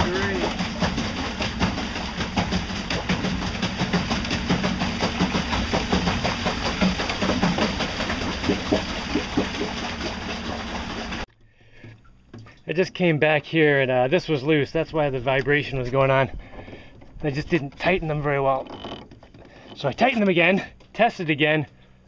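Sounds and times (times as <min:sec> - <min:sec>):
electric outboard motor humming: 0:00.0 - 0:11.3.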